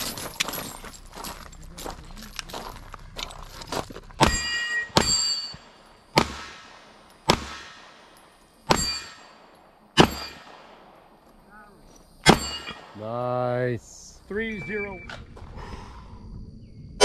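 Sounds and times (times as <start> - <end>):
steel target ringing: 4.2 - 6.6, 8.6 - 10.6, 12.2 - 13.0
handgun shots: 6.2 - 8.1, 10.0 - 10.8.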